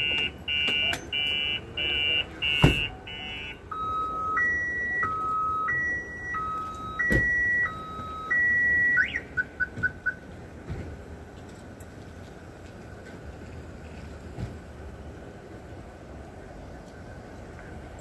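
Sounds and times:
electronic siren cycling tones: 0.0 - 10.1.

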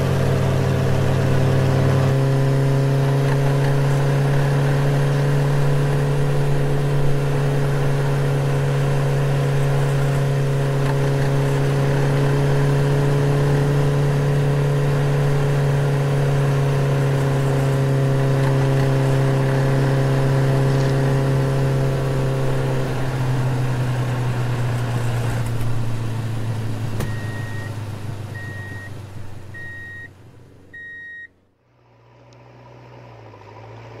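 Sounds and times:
car engine hum: 0.0 - 34.0
short high beeps: 27.1 - 27.7, 28.4 - 28.9, 29.6 - 30.1, 30.8 - 31.3.

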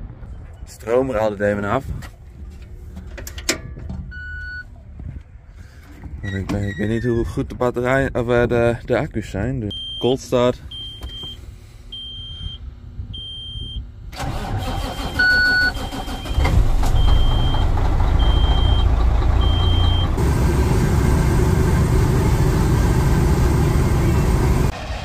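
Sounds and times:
dashboard warning chime beeping: 9.7 - 12.6, 13.2 - 13.8, 14.8 - 20.2
truck driving on highway: 14.2 - 25.0
diesel engine running loudly: 16.4 - 25.0.

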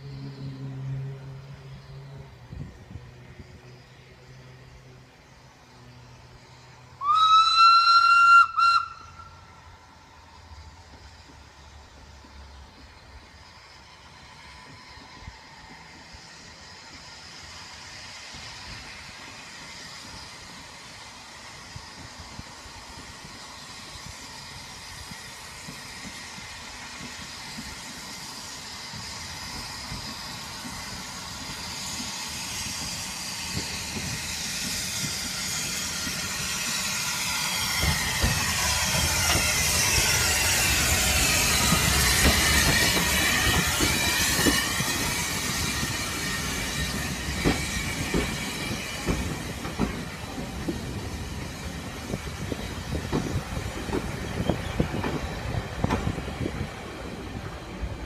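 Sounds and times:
steam hiss: 0.0 - 58.0
steam locomotive and coaches running: 0.0 - 58.0
wheels clicking over rail joints: 25.0 - 58.0.

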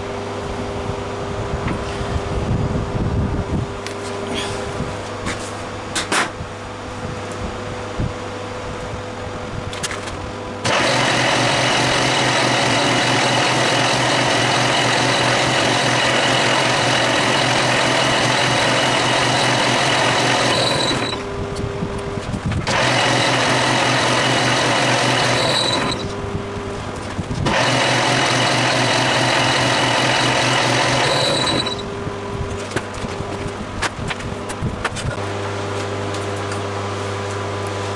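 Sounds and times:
metal lathe running: 10.6 - 21.3, 22.6 - 32.0
lathe hum: 10.6 - 21.8, 22.6 - 32.3.

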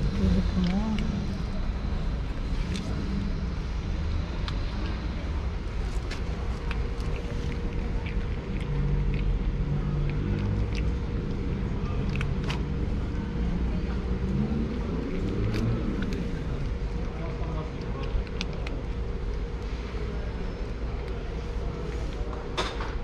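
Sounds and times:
vehicle motor rumble: 0.0 - 22.5
cat crunching dry kibble: 4.1 - 22.3.

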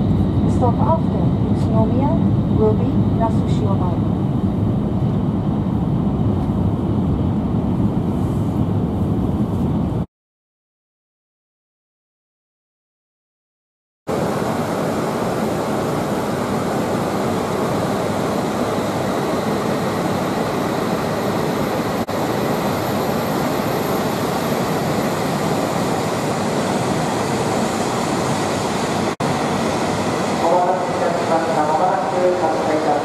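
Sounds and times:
train departing: 14.2 - 33.0.

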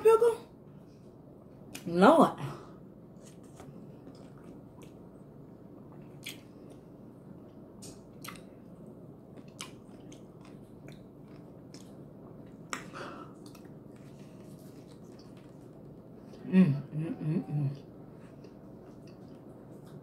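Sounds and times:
person biting and chewing pickle: 6.2 - 6.8, 7.8 - 8.5.

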